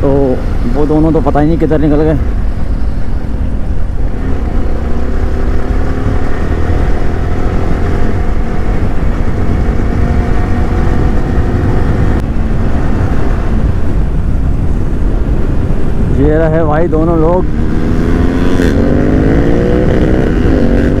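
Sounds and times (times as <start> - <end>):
motorcycle engine cruising: 0.0 - 21.0
wind buffeting microphone: 0.0 - 21.0.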